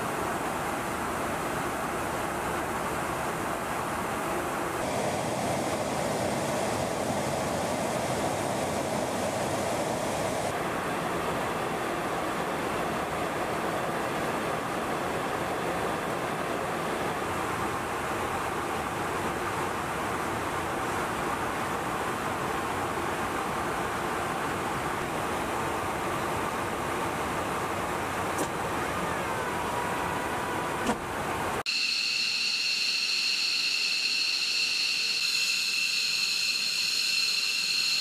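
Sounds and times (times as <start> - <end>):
jet aircraft roar: 4.7 - 17.9, 31.6 - 38.0.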